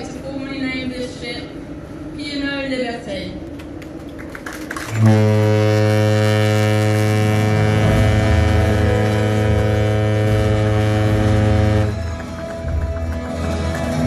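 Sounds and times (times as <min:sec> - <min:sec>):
ship's horn long deep blast: 0:04.9 - 0:12.3.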